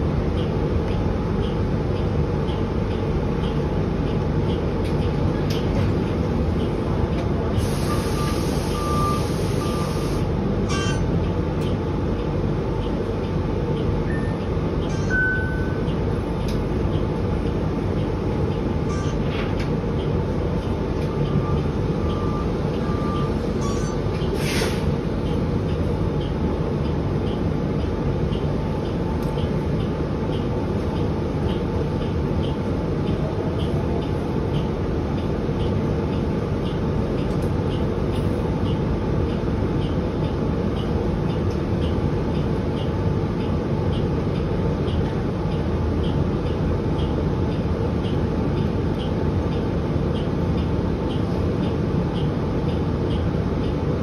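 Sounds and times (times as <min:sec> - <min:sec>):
low drone of bus and road: 0:00.0 - 0:54.0
light even ticking: 0:00.3 - 0:06.8, 0:25.1 - 0:54.0.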